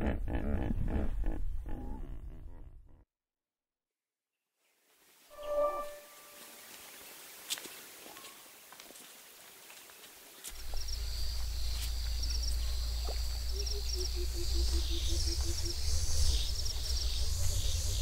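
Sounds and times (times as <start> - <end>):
steady low rumble: 10.6 - 18.0.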